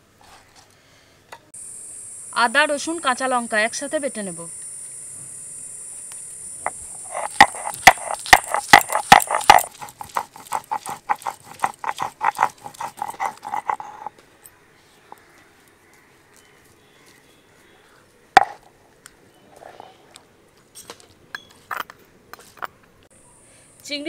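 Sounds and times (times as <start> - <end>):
pestle pounding with ringing note: 6.7 - 14.1.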